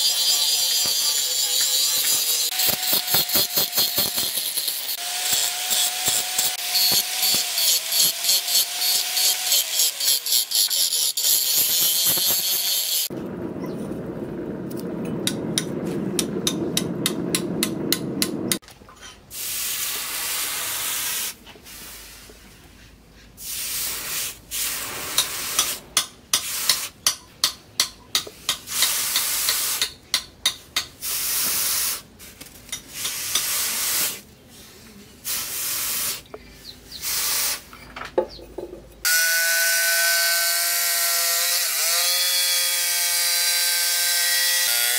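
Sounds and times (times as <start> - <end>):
angle grinder grinding steel: 0.0 - 13.1.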